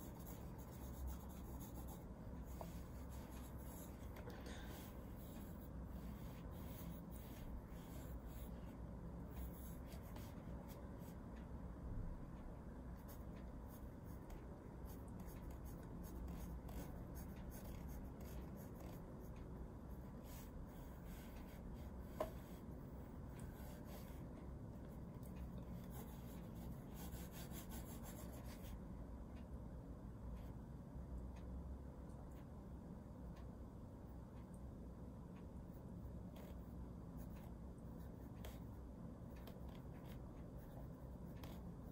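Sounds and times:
pencil scratching on paper: 0:00.0 - 0:08.7, 0:09.3 - 0:11.2, 0:13.0 - 0:19.4, 0:20.0 - 0:22.7, 0:23.3 - 0:28.7, 0:36.4 - 0:38.7, 0:39.3 - 0:41.9.

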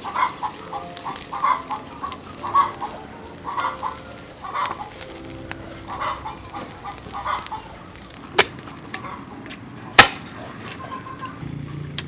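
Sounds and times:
chickens clucking: 0:00.0 - 0:09.5.

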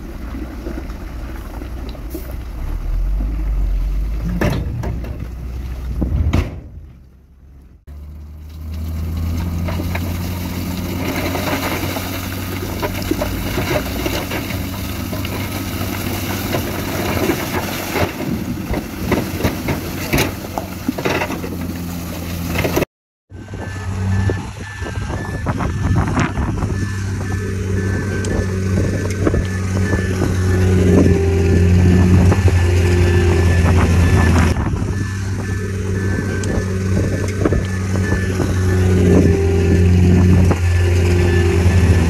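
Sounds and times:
diesel truck engine running: 0:00.0 - 0:42.0
rock sliding and clattering: 0:08.4 - 0:22.8.

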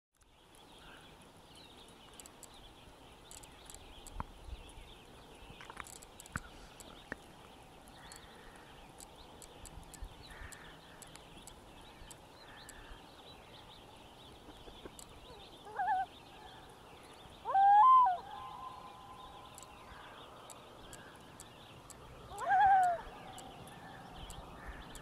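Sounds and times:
loon calling: 0:15.3 - 0:16.2, 0:17.4 - 0:20.2, 0:22.3 - 0:24.0.

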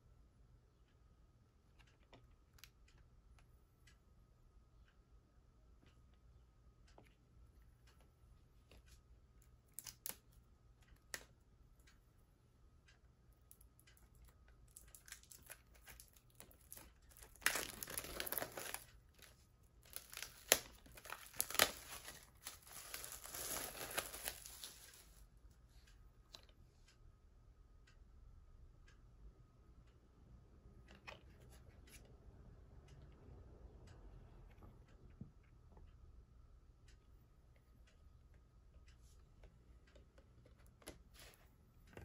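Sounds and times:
plastic wrap crinkling and tearing: 0:15.0 - 0:19.3, 0:19.9 - 0:25.2.

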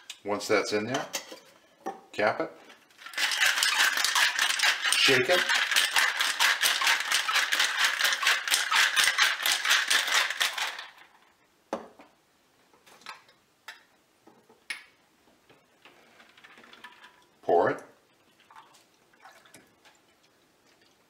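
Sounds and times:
ice rattling in cocktail shaker: 0:02.9 - 0:11.2, 0:16.3 - 0:17.3.

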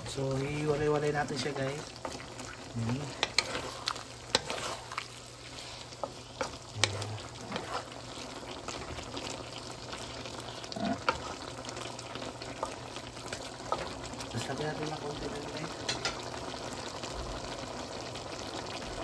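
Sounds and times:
meat sizzling in a pan: 0:00.0 - 0:19.0
utensil scraping a pan: 0:00.6 - 0:08.2.

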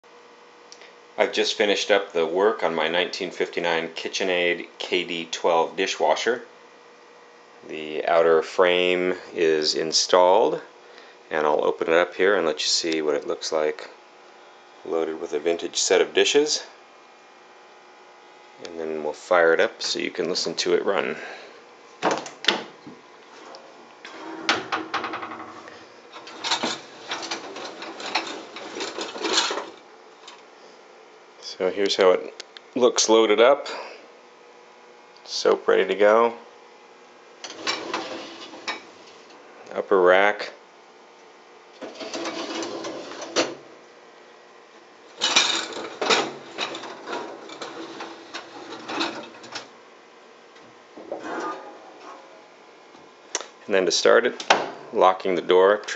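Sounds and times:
racks sliding out: 0:23.4 - 0:25.3, 0:26.2 - 0:29.8, 0:37.5 - 0:38.8, 0:41.8 - 0:43.6, 0:45.2 - 0:49.7, 0:51.0 - 0:52.4
dishes rattling and clinking: 0:26.2 - 0:29.8, 0:45.2 - 0:49.6.

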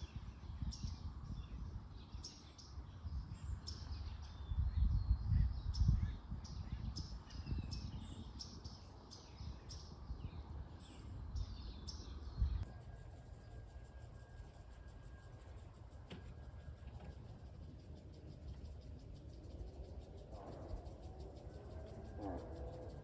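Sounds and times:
small birds chirping: 0:00.0 - 0:14.4.

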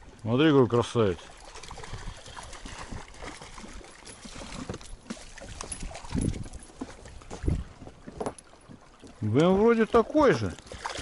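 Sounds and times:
water sloshing: 0:00.0 - 0:11.0
fish thrashing and splashing: 0:01.2 - 0:09.2, 0:10.6 - 0:11.0.

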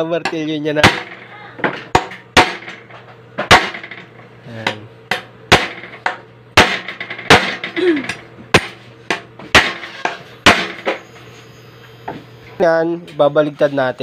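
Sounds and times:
hammer striking bolts: 0:00.2 - 0:11.0.

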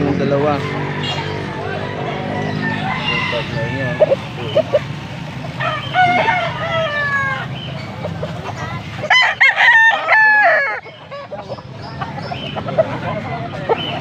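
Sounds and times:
rooster crowing: 0:02.0 - 0:04.2, 0:05.6 - 0:07.5, 0:09.1 - 0:10.8.

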